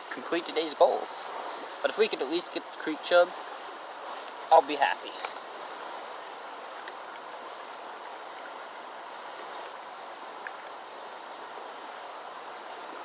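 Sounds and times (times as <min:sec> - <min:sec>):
creek water rushing: 0:00.0 - 0:13.0.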